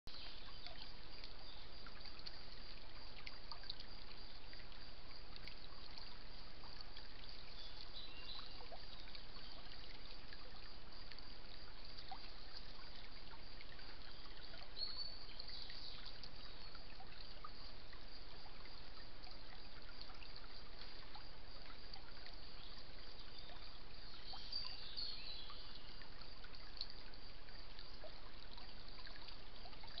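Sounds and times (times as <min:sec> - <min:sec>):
stream trickling over stones: 0:00.1 - 0:30.0.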